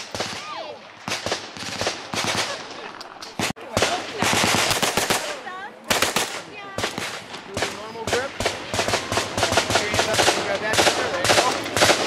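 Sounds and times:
submachine gun fire: 0.0s - 2.8s, 3.4s - 12.0s.

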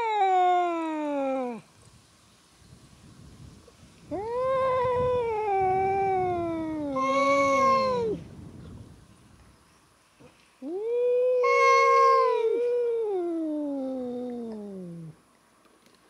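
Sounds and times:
cat yowling: 0.0s - 1.6s, 4.1s - 8.2s, 10.6s - 15.1s.

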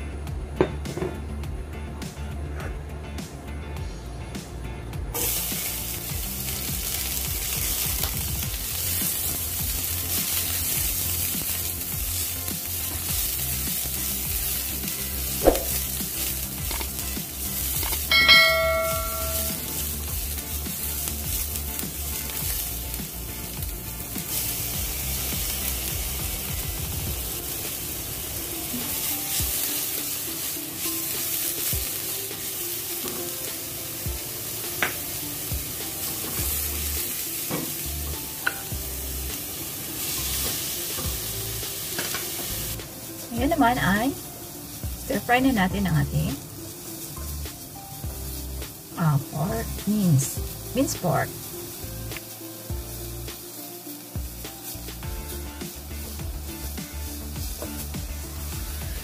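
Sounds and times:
onion and garlic sizzling in oil: 5.1s - 59.0s
short bell-like chime: 18.1s - 19.5s.

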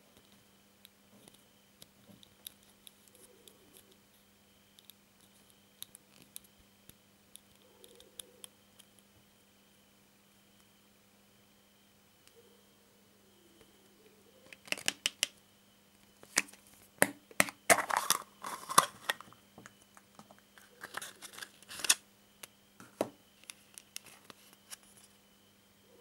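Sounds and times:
crinkling: 16.1s - 22.0s
plastic capsule clicking: 16.3s - 19.3s.

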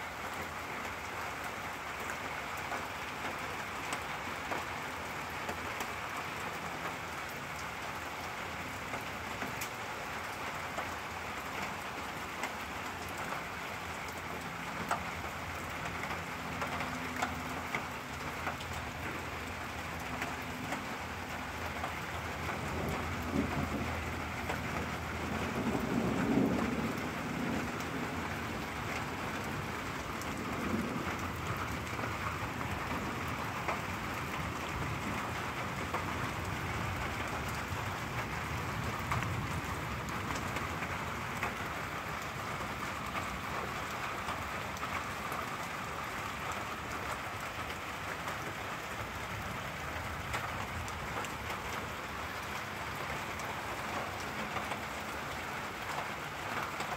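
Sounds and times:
sharp ticks of raindrops: 0.0s - 56.9s
steady rain falling: 0.0s - 56.9s
low rumble of thunder: 22.1s - 45.7s.

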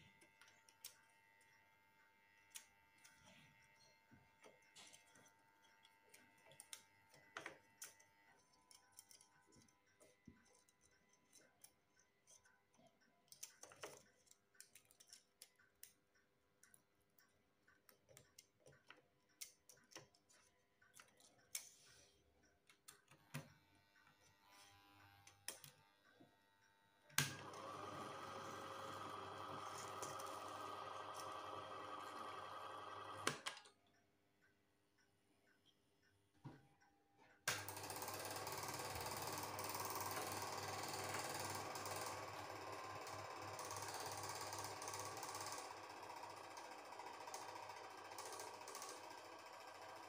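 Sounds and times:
film projector running: 27.2s - 33.4s, 37.5s - 50.0s.

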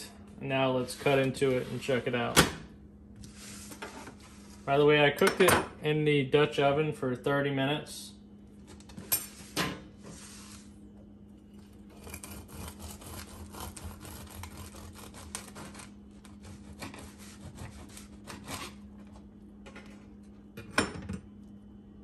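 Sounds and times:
knife sawing through bread: 11.9s - 18.9s.

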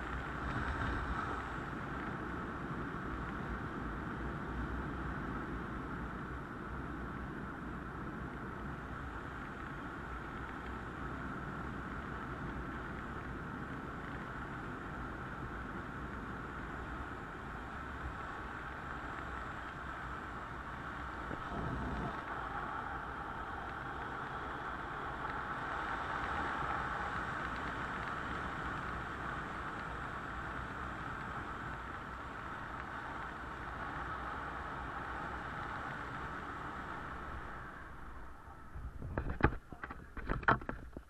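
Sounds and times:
wind rushing over microphone: 0.0s - 41.0s.

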